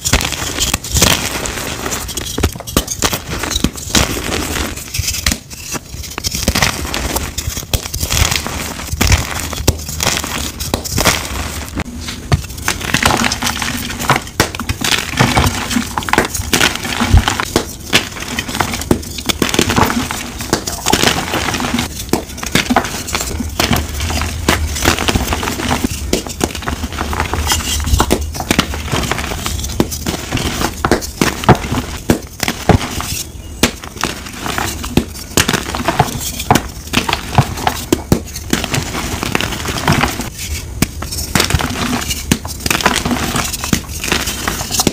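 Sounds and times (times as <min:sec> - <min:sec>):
chalk blocks crunching and cracking: 0:00.0 - 0:44.9.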